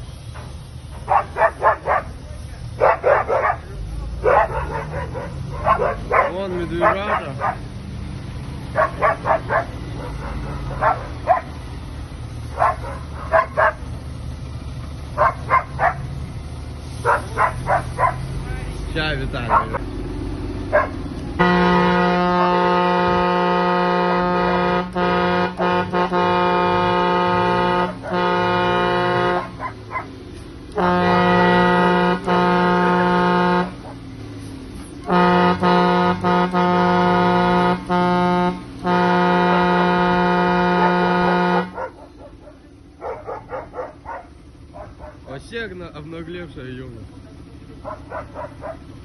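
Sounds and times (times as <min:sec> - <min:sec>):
horn blasts: 0:21.2 - 0:29.7, 0:30.7 - 0:34.0, 0:35.0 - 0:42.0.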